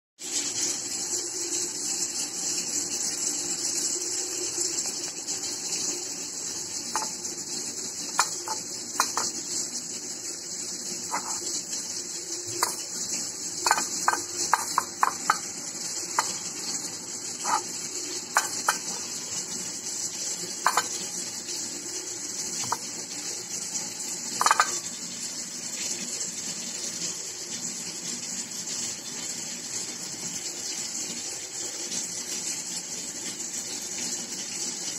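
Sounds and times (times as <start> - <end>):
clicks and taps on ceramic plate: 6.9 - 7.2, 8.1 - 9.3, 11.1 - 11.4, 12.5 - 12.9, 13.6 - 15.5, 16.2 - 16.4, 17.4 - 17.6, 18.4 - 19.0, 20.6 - 21.0, 24.4 - 24.8.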